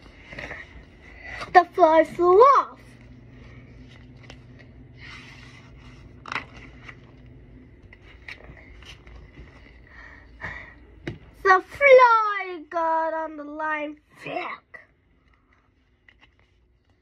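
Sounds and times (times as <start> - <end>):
book pages turning: 0.0 - 1.6, 2.8 - 9.9, 15.1 - 17.0.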